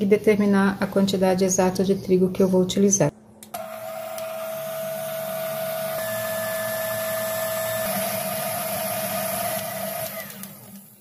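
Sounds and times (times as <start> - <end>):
stand mixer motor whining: 3.6 - 11.0.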